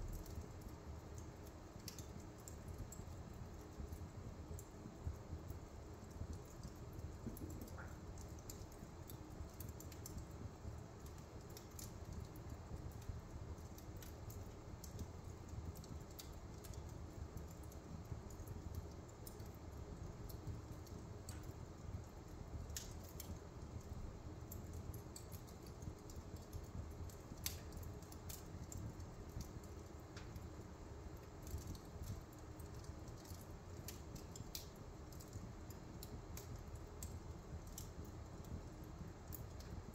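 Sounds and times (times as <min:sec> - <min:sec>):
burning logs popping: 0:00.0 - 0:39.9
low steady rumble: 0:00.0 - 0:39.9
wood fire crackling: 0:00.0 - 0:39.9.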